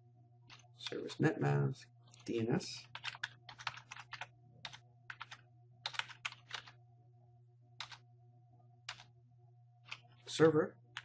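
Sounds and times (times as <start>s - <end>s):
faint low hum: 0.0s - 11.0s
typing on keyboard: 2.8s - 6.8s, 7.8s - 8.0s, 8.9s - 9.1s.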